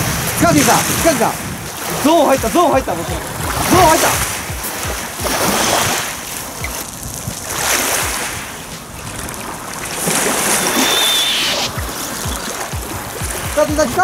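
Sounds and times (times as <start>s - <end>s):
waves washing on gravel: 0.0s - 14.0s
wind buffeting microphone: 0.0s - 14.0s.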